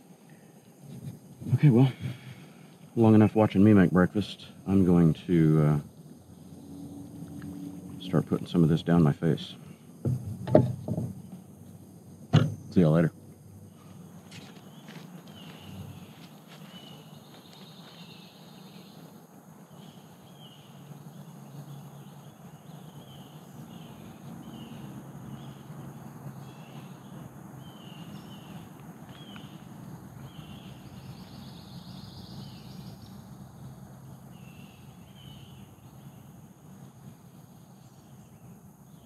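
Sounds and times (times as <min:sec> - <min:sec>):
birds chirping: 0:00.0 - 0:39.0
low background hum: 0:00.0 - 0:39.0.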